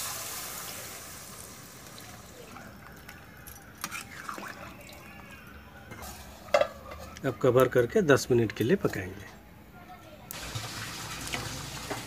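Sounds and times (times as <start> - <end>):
water hissing in hot pan: 0.0 - 2.4, 10.3 - 12.0.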